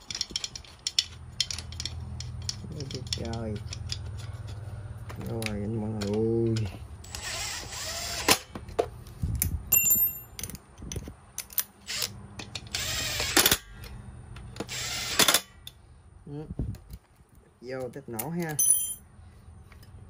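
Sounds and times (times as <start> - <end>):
electric screwdriver whirring: 7.1 - 8.4, 12.7 - 13.6, 14.6 - 15.4.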